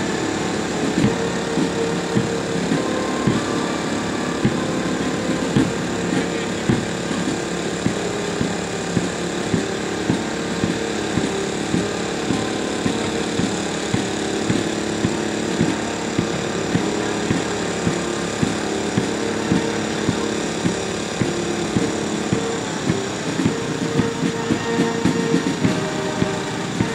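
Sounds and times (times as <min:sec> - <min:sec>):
engine running steadily: 0:00.0 - 0:26.9
short repeating knock: 0:05.4 - 0:26.9.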